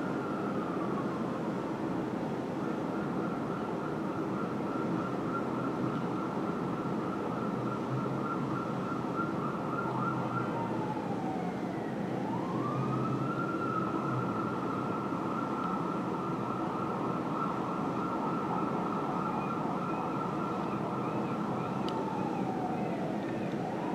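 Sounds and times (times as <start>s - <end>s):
city traffic noise: 0.0s - 23.9s
siren wailing: 2.9s - 23.9s
second siren warbling faintly: 6.8s - 23.9s.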